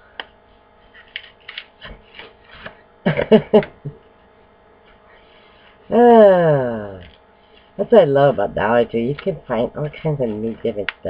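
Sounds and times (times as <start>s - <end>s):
woman laughing: 3.0s - 4.0s.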